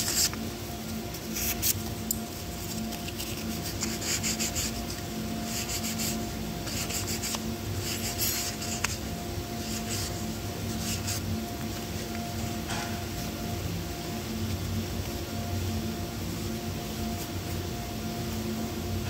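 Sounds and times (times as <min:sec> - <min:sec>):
hissy rubbing and scraping strokes: 0:00.0 - 0:18.6.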